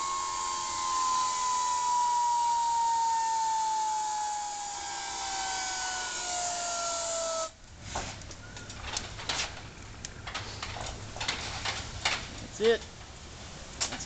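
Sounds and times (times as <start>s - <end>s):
gas turbine engine whine: 0.0s - 7.7s
loud rushing hiss: 0.0s - 8.0s.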